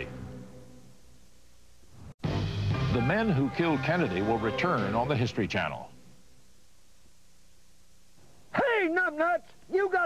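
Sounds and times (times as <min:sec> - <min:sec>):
tape hiss: 0:00.0 - 0:10.0
television music sting: 0:02.0 - 0:06.0.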